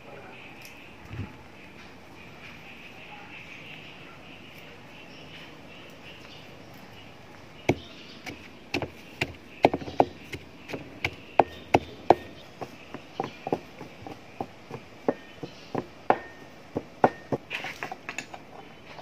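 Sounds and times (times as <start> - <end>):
pestle pounding in a mortar: 7.6 - 17.6.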